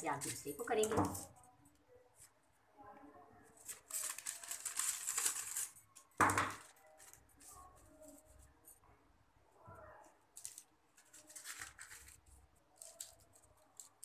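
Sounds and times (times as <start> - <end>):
stiff paper rustling: 3.6 - 5.8, 10.3 - 14.0
knock on table: 6.2 - 6.6.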